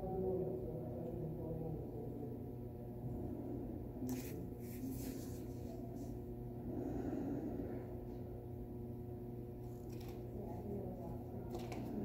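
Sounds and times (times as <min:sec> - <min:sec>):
low room hum: 0:00.0 - 0:12.0
soft rubbing: 0:04.0 - 0:06.3.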